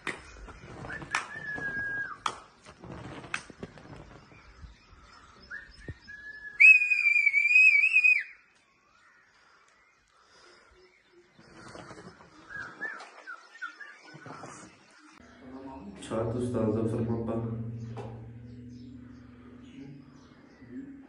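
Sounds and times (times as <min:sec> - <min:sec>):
person whistling: 0:06.4 - 0:08.3.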